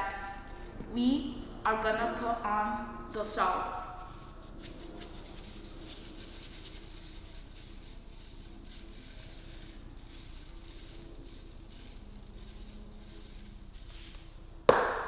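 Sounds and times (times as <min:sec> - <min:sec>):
salt grains shaken onto paper: 0:03.8 - 0:14.8.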